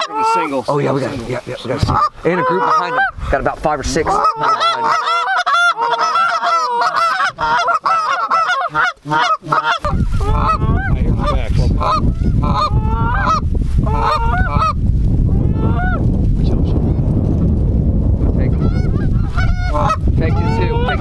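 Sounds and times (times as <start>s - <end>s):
goose call honks and clucks: 0.0s - 0.5s, 1.8s - 3.2s, 4.0s - 14.8s, 15.5s - 16.0s, 18.5s - 21.0s
low wind rumble on microphone: 0.8s - 2.4s, 3.0s - 4.4s, 6.8s - 8.0s, 9.7s - 21.0s.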